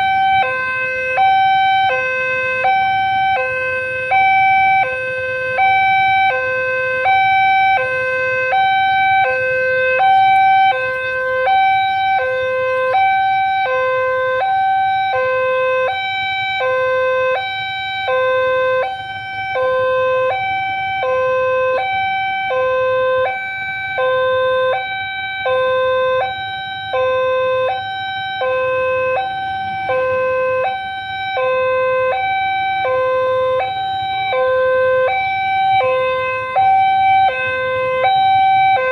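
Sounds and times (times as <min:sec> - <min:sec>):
steady higher tone: 0:00.0 - 0:22.0
level-crossing two-tone alarm: 0:00.0 - 0:38.9.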